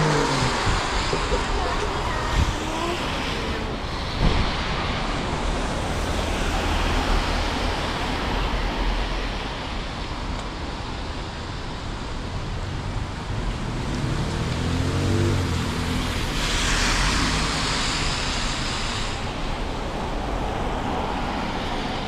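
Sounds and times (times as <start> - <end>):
low traffic rumble: 0.0 - 22.0
street traffic hiss: 0.0 - 22.0
sharp thump: 4.2 - 4.6.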